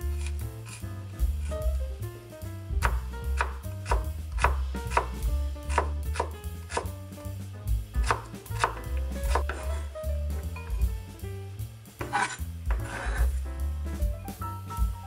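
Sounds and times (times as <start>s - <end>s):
knife chopping on wooden board: 0.0s - 1.8s, 2.8s - 7.0s, 8.0s - 9.9s, 12.0s - 13.4s.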